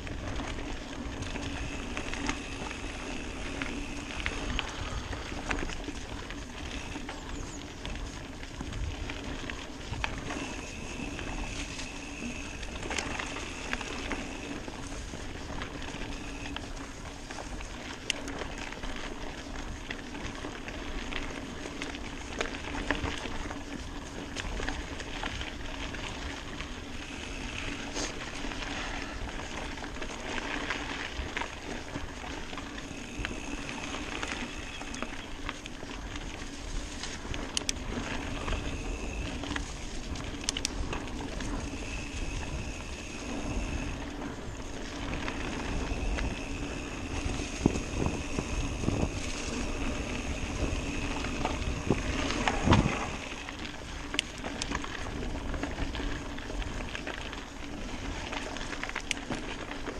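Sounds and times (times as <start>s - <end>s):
bike rattling: 0.0s - 59.9s
bike tyre noise on dirt: 0.0s - 59.9s
wind on the microphone: 31.0s - 57.0s.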